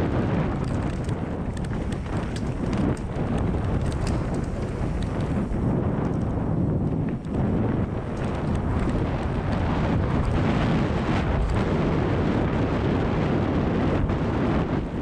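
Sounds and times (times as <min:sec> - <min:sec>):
tyres on packed dirt: 0:00.0 - 0:12.7
bike clicks and rattles: 0:00.0 - 0:15.0
wind noise on microphone: 0:00.0 - 0:15.0.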